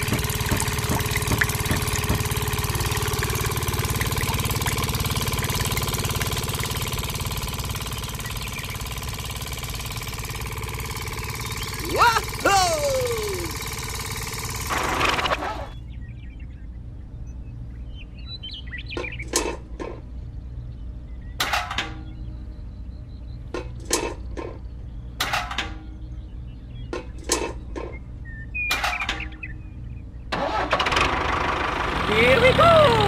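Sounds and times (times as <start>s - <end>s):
steady low hum: 0.0s - 28.7s
loud steady noise: 3.4s - 15.4s.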